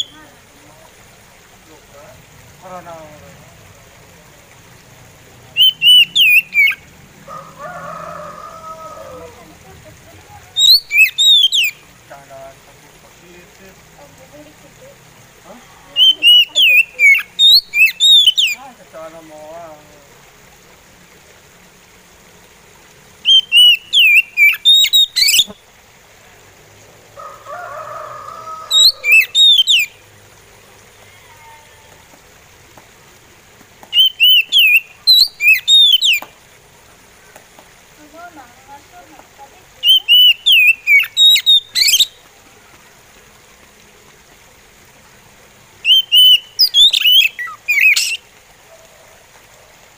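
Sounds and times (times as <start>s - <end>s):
bird whistling song: 5.6s - 6.8s, 10.5s - 11.8s, 16.0s - 18.6s, 23.2s - 25.6s, 28.7s - 29.9s, 33.9s - 36.3s, 39.8s - 42.2s, 45.8s - 48.2s
rooster crowing: 7.2s - 9.6s, 27.1s - 29.4s.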